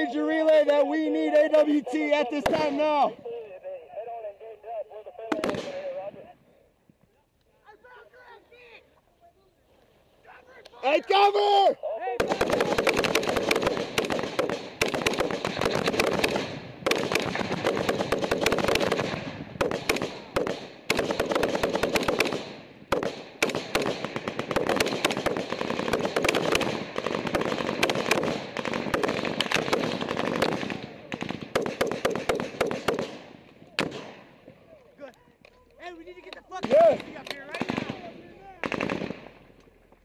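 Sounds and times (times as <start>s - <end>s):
automatic gunfire: 5.3s - 5.8s, 12.2s - 34.2s, 36.6s - 39.4s.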